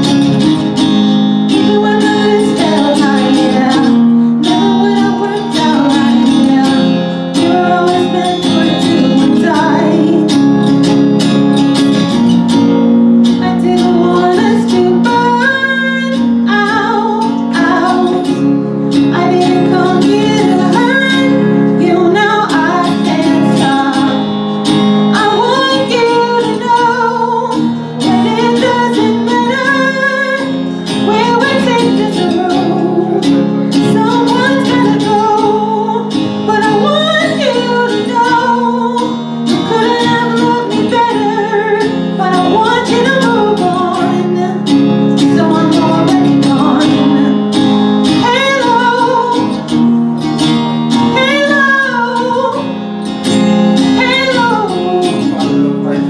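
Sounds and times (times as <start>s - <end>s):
strummed acoustic guitar: 0.0s - 56.0s
woman singing: 0.0s - 56.0s.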